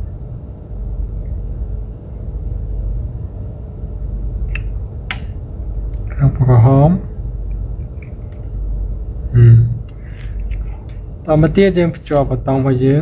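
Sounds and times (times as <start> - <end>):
steady low rumble: 0.0 - 13.0
wire pins clicking into sockets: 7.9 - 8.6, 12.1 - 12.3.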